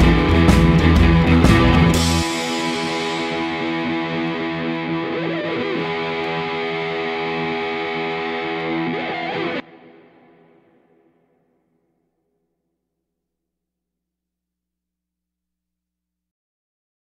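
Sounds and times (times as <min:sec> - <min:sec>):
distorted guitar chord: 0:00.0 - 0:11.4.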